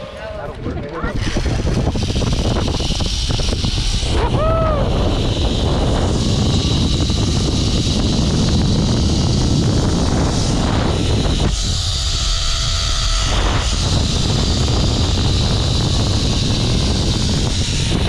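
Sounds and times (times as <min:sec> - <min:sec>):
wind buffeting microphone: 0:00.0 - 0:18.0
pulleys whining on steel cable: 0:01.1 - 0:18.0
rising and falling whoop: 0:04.1 - 0:05.2.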